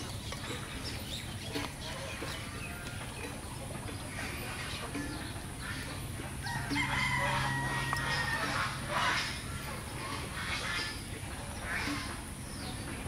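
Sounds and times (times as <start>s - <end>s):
rooster crowing: 6.4s - 8.6s.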